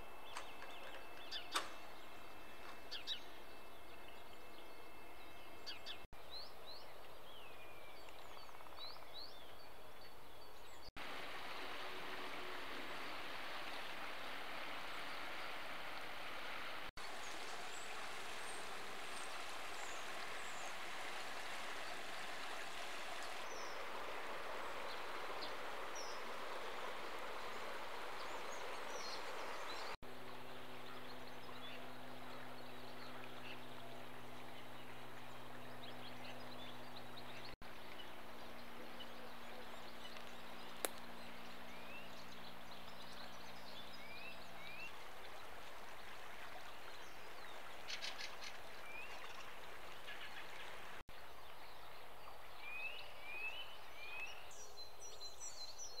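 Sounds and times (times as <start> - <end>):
birds chirping and trilling: 0.0 - 10.9, 17.0 - 45.0
river water flowing: 11.0 - 56.0.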